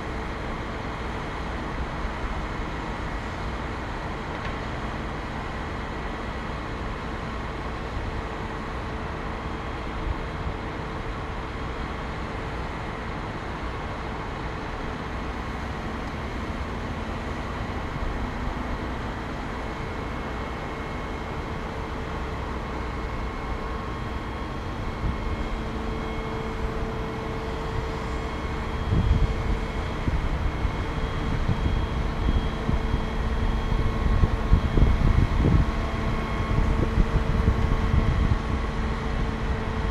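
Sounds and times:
fire truck engine and hydraulics hum: 0:00.0 - 0:39.9
wind buffeting microphone: 0:27.6 - 0:39.9.

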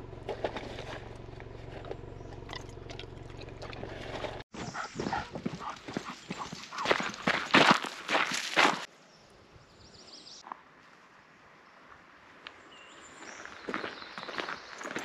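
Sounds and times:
footsteps crunching on gravel: 0:00.3 - 0:08.9, 0:13.2 - 0:15.0.

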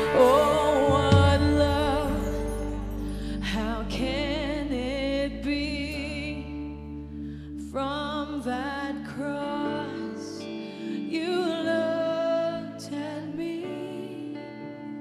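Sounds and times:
woman singing with vibrato: 0:00.0 - 0:06.8, 0:07.7 - 0:14.8
band playing sustained chords: 0:00.0 - 0:11.3.

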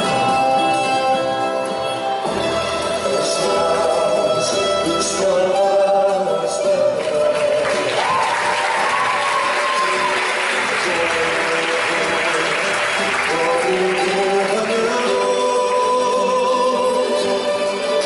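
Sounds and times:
group singing with instruments: 0:00.0 - 0:09.0, 0:09.6 - 0:18.0
applause: 0:06.9 - 0:16.2.

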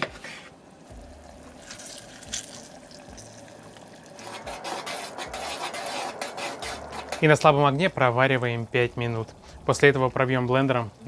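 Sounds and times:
juice trickling and dripping: 0:00.6 - 0:04.8, 0:08.4 - 0:11.0.

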